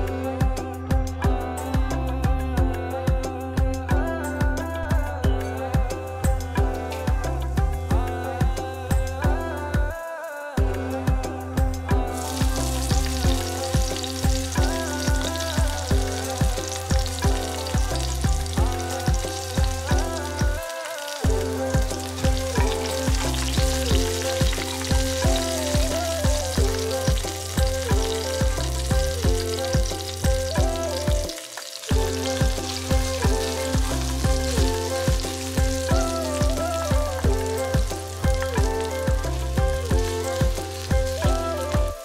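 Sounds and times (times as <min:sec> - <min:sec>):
background music with a beat: 0:00.0 - 0:42.0
oil sizzling in a pot: 0:11.9 - 0:42.0.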